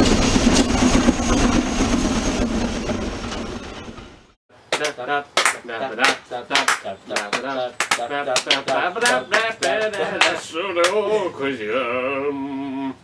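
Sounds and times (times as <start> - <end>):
sharp percussive hits: 4.8 - 10.4.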